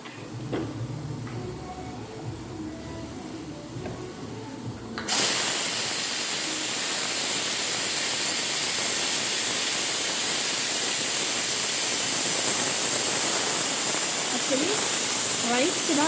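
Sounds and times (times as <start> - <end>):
pressure cooker whistle hissing: 5.0 - 16.0.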